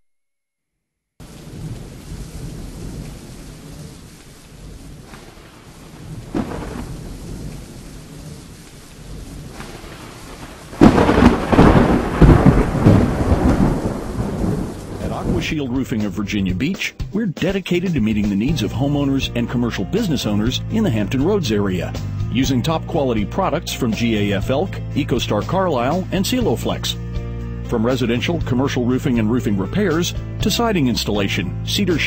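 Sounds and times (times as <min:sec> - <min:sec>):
sharp thunder crack: 0:01.2 - 0:15.7
rumbling thunder: 0:01.2 - 0:15.8
steady rain: 0:01.2 - 0:15.8.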